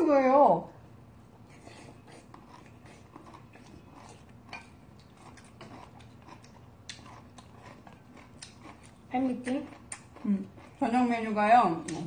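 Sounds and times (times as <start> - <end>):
spoon clicks and chewing: 2.1 - 9.0, 9.7 - 10.8.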